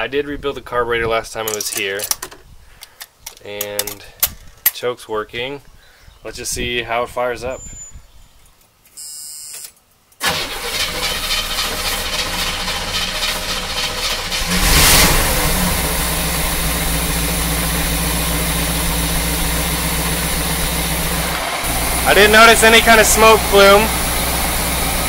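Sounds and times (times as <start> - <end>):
car engine cranking and idling: 10.2 - 25.0.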